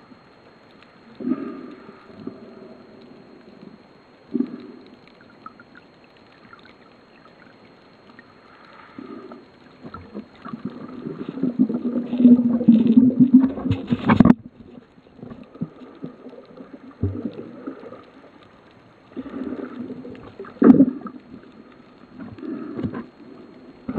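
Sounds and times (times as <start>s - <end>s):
muffled underwater gurgling: 0.0s - 23.9s.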